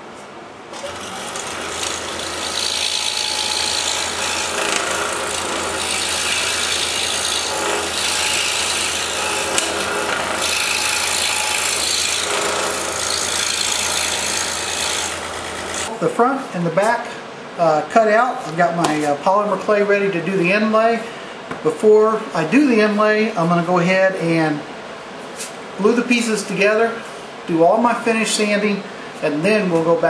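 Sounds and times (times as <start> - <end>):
scroll saw motor hum: 0.7 - 15.9
saw blade rasping through wood: 0.8 - 15.9.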